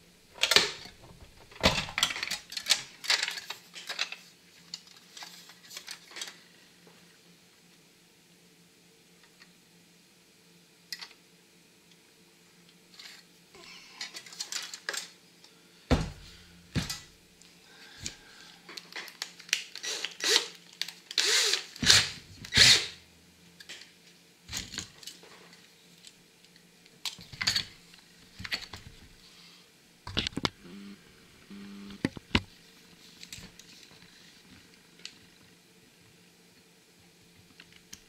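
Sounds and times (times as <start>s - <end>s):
cordless drill being handled: 18.8s - 22.9s.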